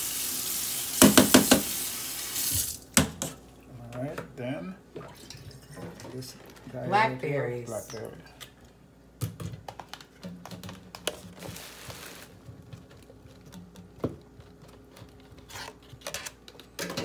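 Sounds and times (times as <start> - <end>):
plastic crinkling: 9.7 - 16.7.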